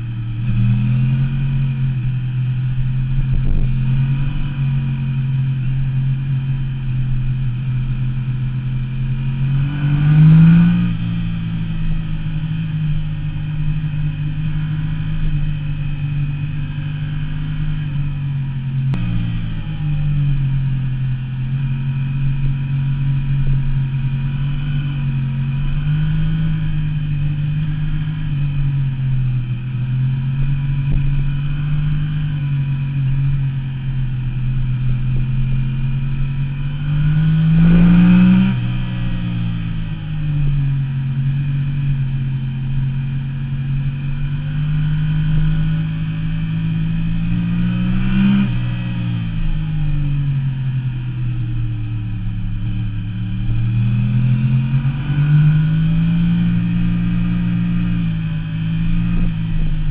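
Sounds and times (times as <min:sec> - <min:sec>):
motorcycle engine at speed: 0:00.0 - 0:59.9.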